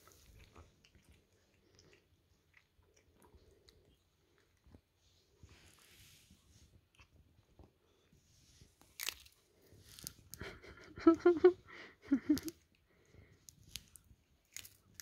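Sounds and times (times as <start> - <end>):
cat chewing: 0.0 - 4.8.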